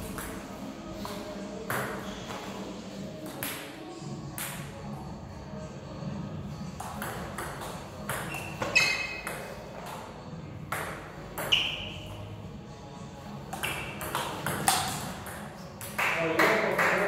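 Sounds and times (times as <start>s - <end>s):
table tennis ball knocking: 13.5s - 16.0s.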